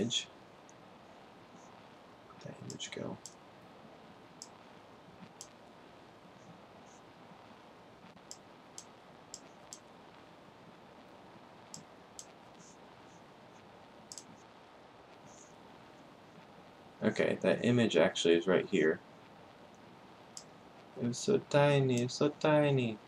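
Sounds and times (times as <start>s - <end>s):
faint steady hiss: 0.0s - 23.0s
computer mouse clicking: 14.1s - 14.3s.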